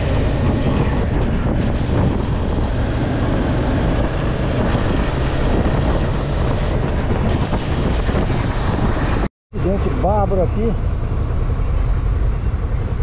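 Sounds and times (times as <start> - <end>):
motorcycle engine: 0.0 - 13.0
wind rush: 0.0 - 13.0.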